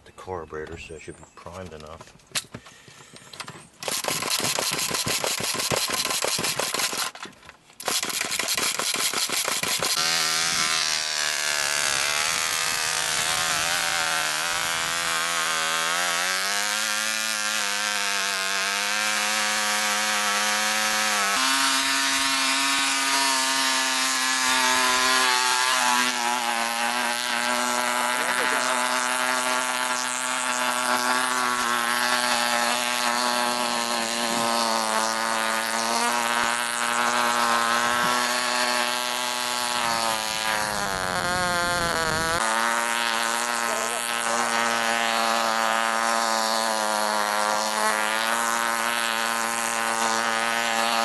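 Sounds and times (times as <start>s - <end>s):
model engine buzzy whine: 2.4s - 51.0s
rattly engine start bursts: 3.2s - 7.2s, 7.8s - 18.1s.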